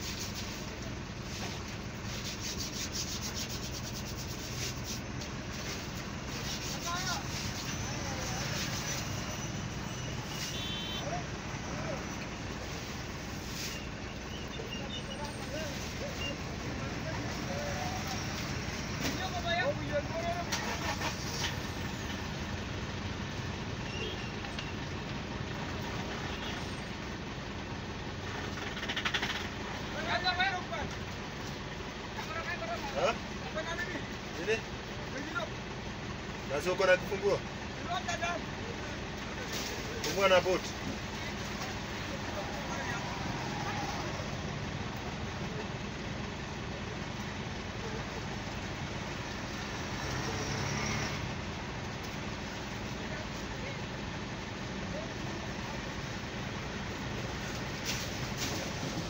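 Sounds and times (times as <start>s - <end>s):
outdoor noise haze: 0.0s - 59.0s
vehicle engine humming: 0.0s - 59.0s.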